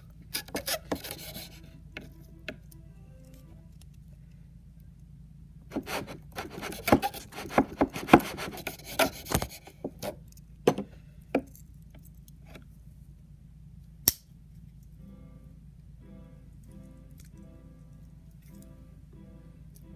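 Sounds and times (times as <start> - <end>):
knife scraping waxy block: 0.4 - 1.6, 5.8 - 10.2.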